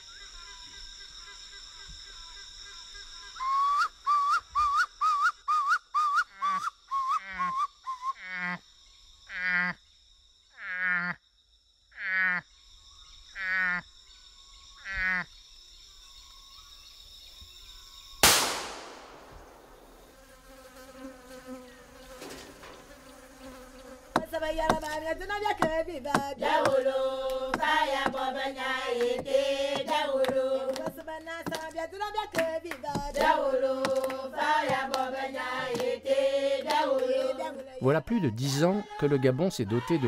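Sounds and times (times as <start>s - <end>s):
insects droning: 0.0s - 40.0s
loud sharp bang: 18.2s - 20.1s.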